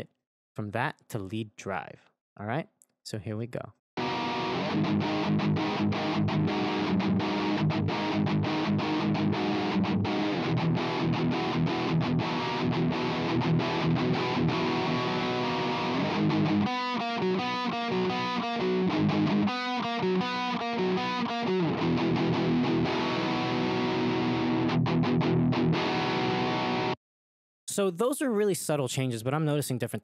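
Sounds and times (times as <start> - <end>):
distorted electric guitar: 4.0 - 27.0.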